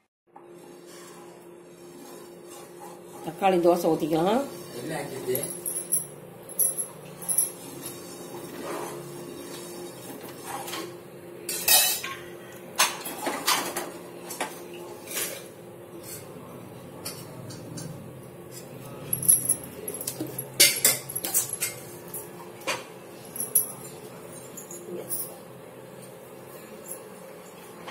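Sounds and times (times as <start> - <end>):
utensils clinking on metal vessels: 11.5 - 16.4, 17.0 - 25.4.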